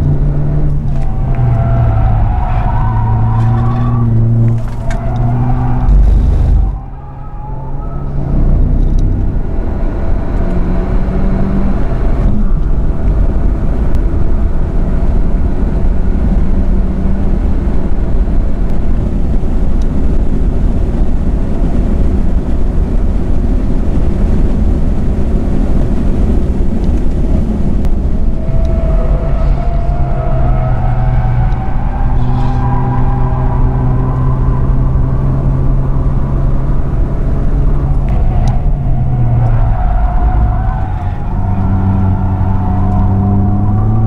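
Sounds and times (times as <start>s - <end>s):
car braking from high speed: 0.0s - 13.4s, 28.0s - 44.0s
race car engine accelerating: 0.0s - 18.4s, 25.7s - 44.0s
wind and tyre noise: 0.0s - 44.0s.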